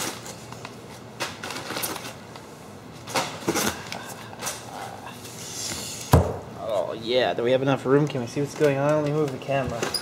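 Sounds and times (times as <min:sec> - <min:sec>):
packing paper rustling: 0:00.0 - 0:02.2.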